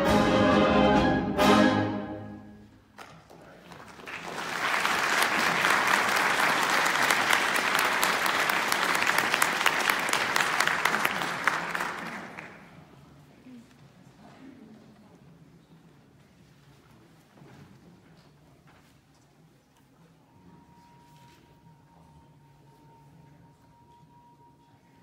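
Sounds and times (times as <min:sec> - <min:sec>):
audience applauding: 0:03.5 - 0:12.8.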